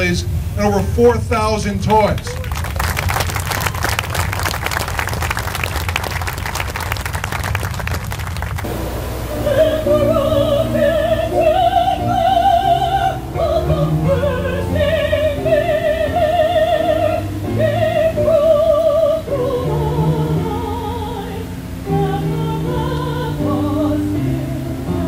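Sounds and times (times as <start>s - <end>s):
woman singing operatically: 9.2s - 25.0s.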